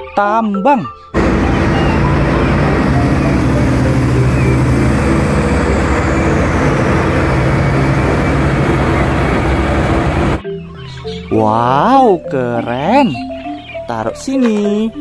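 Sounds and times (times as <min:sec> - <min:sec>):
truck diesel engine driving by: 0:01.2 - 0:10.4.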